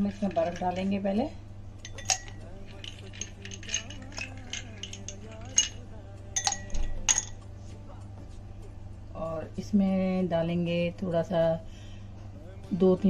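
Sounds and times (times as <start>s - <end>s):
ice cubes clinking in glass: 0.0s - 1.0s, 1.9s - 7.4s.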